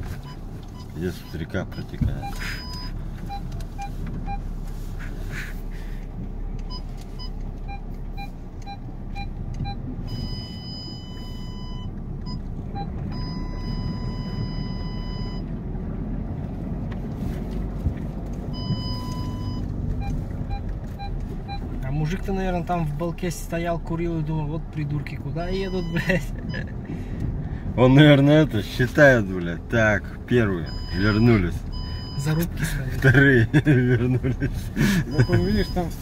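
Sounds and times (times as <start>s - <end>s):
car engine and tyre rumble: 0.0s - 36.0s
parking sensor beeps: 0.1s - 4.6s, 6.6s - 15.5s, 18.5s - 22.4s, 25.0s - 26.8s, 30.3s - 33.7s, 34.8s - 36.0s.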